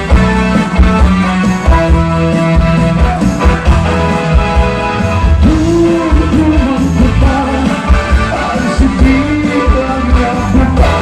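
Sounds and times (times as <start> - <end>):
live band playing cha-cha music: 0.0 - 11.0
person singing: 5.4 - 11.0.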